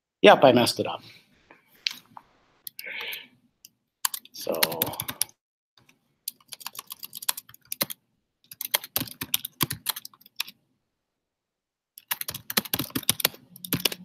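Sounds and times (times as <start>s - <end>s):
typing on computer keyboard: 4.0s - 5.3s, 6.3s - 10.6s, 12.0s - 14.0s.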